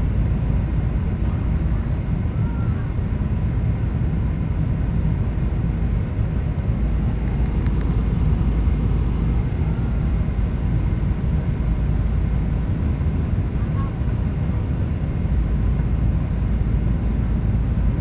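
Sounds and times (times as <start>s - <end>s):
jet engines roaring: 0.0s - 18.0s
rushing air: 5.7s - 13.3s.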